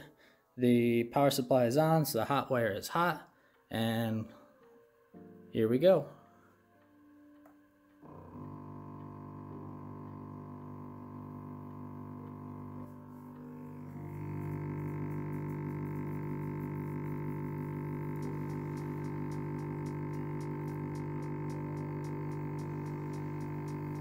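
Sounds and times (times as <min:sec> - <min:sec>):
stepper motors humming: 0:08.0 - 0:24.0.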